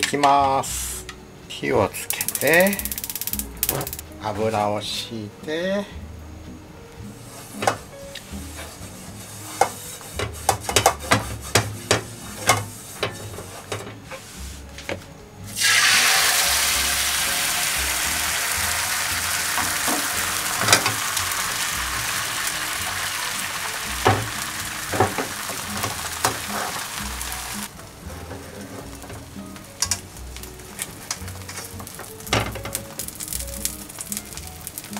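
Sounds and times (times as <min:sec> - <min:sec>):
egg sizzling in frying pan: 0:02.1 - 0:04.1, 0:15.5 - 0:34.9.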